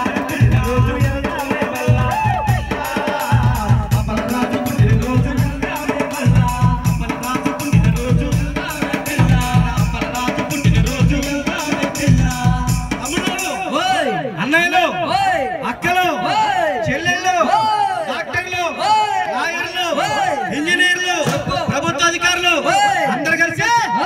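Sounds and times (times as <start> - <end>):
person singing melody: 0.0 - 13.0.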